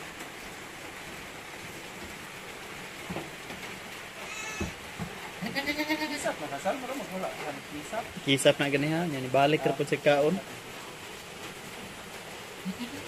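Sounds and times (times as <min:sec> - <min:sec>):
steady hiss: 0:00.0 - 0:13.0
goats bleating: 0:04.2 - 0:04.8, 0:05.4 - 0:06.4, 0:12.6 - 0:13.0.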